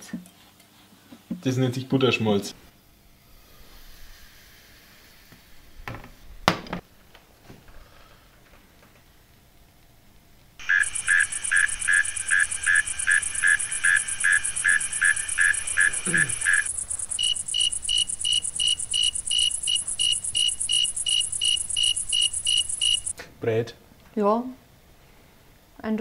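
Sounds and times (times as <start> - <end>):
crickets chirping: 10.6 - 23.1
fast high trill: 10.6 - 23.1.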